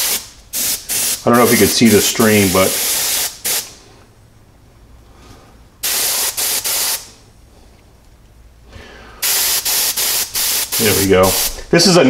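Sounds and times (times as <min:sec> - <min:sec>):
airbrush spraying hissing bursts: 0:00.0 - 0:03.8, 0:05.8 - 0:07.2, 0:09.2 - 0:11.7.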